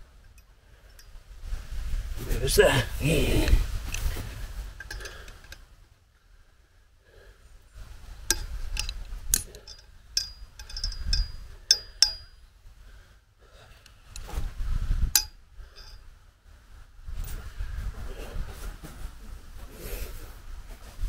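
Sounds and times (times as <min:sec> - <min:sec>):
wind rumbling on microphone: 0:01.3 - 0:05.3, 0:14.1 - 0:21.0
tool clinking on metal pole: 0:08.3 - 0:12.4, 0:15.2 - 0:16.0.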